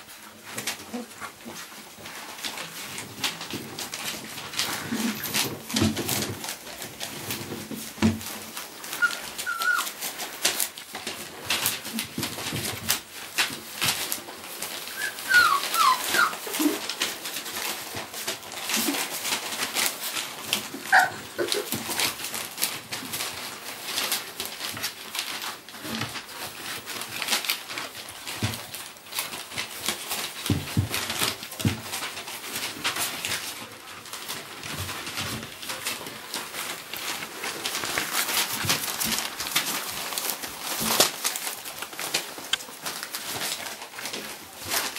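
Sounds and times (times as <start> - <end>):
puppy paws scratching: 0.0 - 44.9
puppies squeaking and whimpering: 8.8 - 10.1, 14.9 - 17.0, 20.8 - 21.8.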